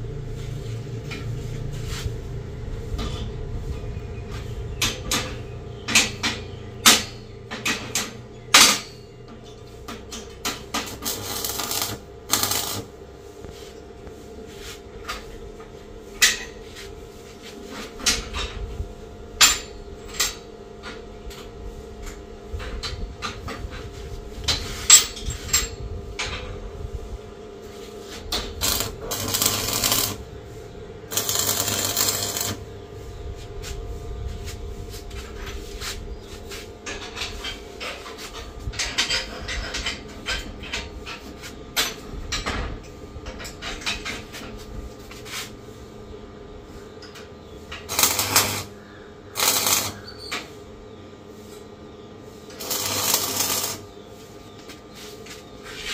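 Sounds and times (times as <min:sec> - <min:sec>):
steady low hum: 0:00.0 - 0:55.9
arc welding crackling: 0:10.4 - 0:14.2, 0:28.2 - 0:30.4, 0:31.1 - 0:33.1, 0:47.7 - 0:50.5, 0:52.4 - 0:54.0.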